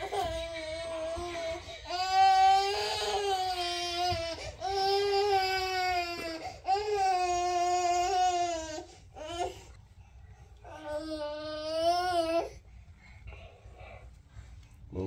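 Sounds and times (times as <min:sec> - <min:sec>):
infant crying: 0:00.0 - 0:09.6, 0:10.7 - 0:12.6.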